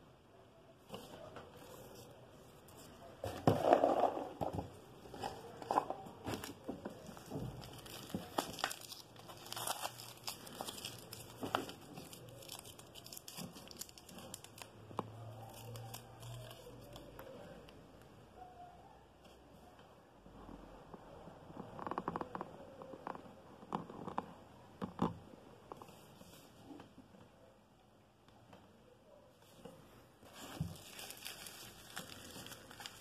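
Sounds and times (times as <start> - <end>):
packaging rustling and crinkling: 2.8 - 17.2, 30.2 - 33.0.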